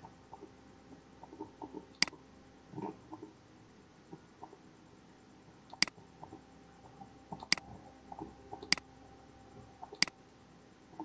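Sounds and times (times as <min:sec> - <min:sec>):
computer mouse clicks: 0:08.6 - 0:08.8.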